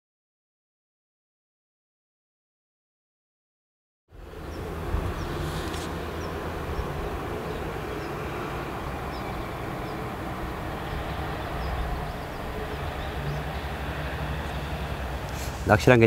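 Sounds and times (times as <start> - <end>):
outdoor rumble with low hum: 4.1 - 16.0
brief hiss: 5.3 - 6.0, 15.3 - 15.8.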